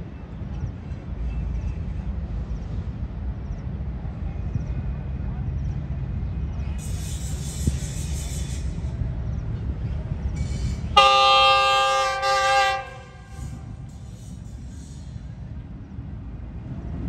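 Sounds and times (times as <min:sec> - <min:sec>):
locomotive rumble: 0:00.0 - 0:17.0
locomotive horn blast: 0:10.5 - 0:14.3.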